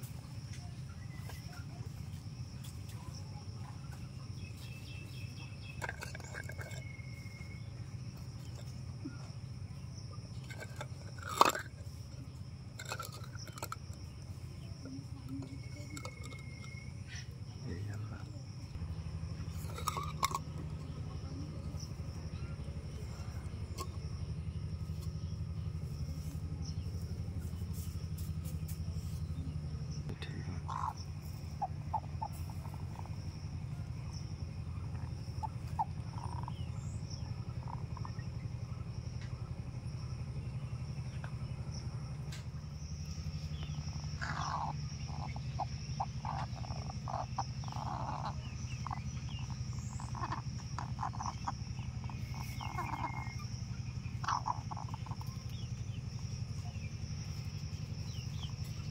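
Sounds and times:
steady low hum: 0:00.0 - 0:58.9
hen clucking: 0:30.1 - 0:33.2, 0:34.8 - 0:36.7, 0:43.9 - 0:56.8.

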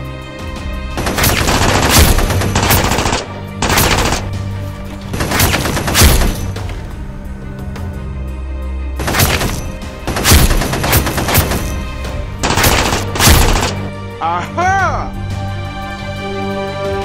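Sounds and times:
machine-gun fire: 0:01.0 - 0:04.4, 0:05.2 - 0:06.4, 0:09.0 - 0:11.8, 0:12.4 - 0:13.9.

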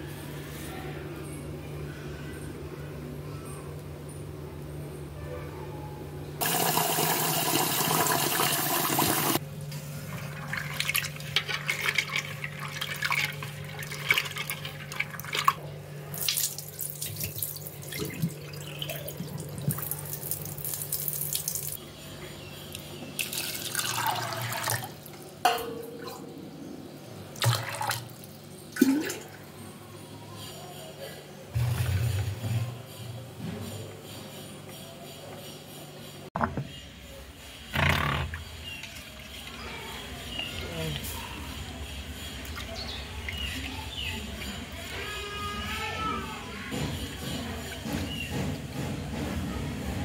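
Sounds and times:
water pouring into pot: 0:06.4 - 0:09.4, 0:10.3 - 0:21.8, 0:23.2 - 0:25.1
water splashing and sloshing: 0:09.9 - 0:15.6, 0:16.2 - 0:21.8.

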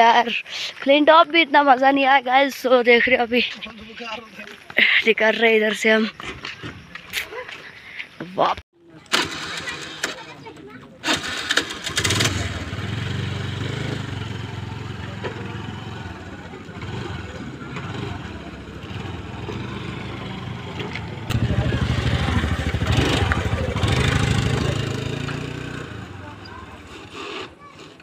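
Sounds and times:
scooter engine running: 0:09.1 - 0:28.0.

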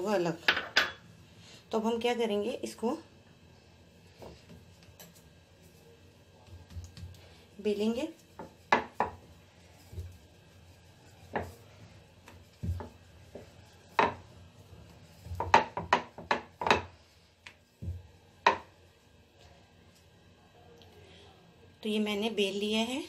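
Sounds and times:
rolling pin knocking on board: 0:08.4 - 0:09.2, 0:12.6 - 0:14.2, 0:15.3 - 0:16.9.

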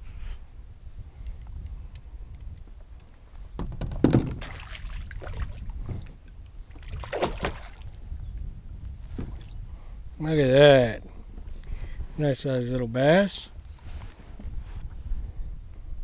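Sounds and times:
knocking and splashing: 0:03.6 - 0:05.6, 0:06.8 - 0:07.8.

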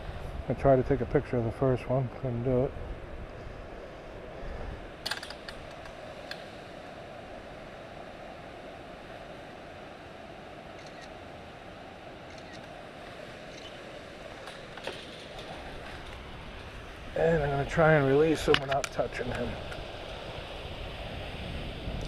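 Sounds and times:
rushing outdoor noise: 0:00.0 - 0:22.0
light handling clicks and taps: 0:18.5 - 0:19.8.

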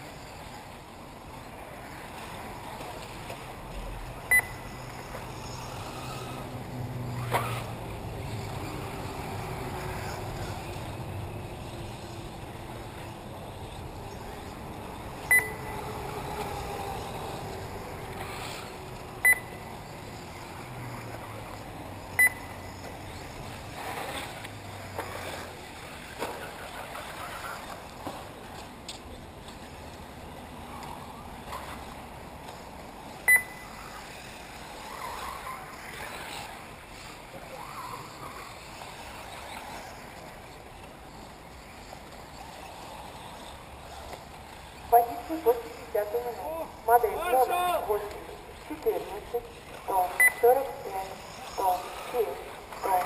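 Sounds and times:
whine of electric rc cars: 0:00.0 - 0:53.0
short electronic beeps: 0:04.3 - 0:04.7, 0:15.2 - 0:15.7, 0:19.2 - 0:19.7, 0:22.2 - 0:22.7, 0:33.3 - 0:33.7, 0:50.2 - 0:50.5.

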